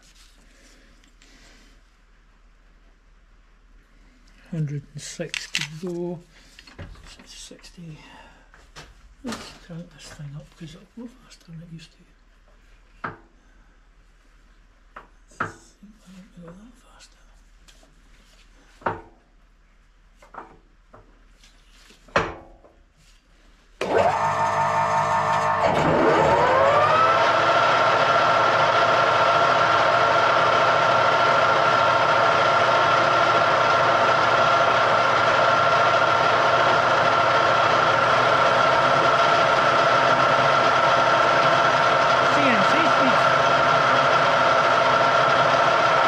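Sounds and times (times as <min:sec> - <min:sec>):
machine tool motor whining: 0:23.8 - 0:46.0.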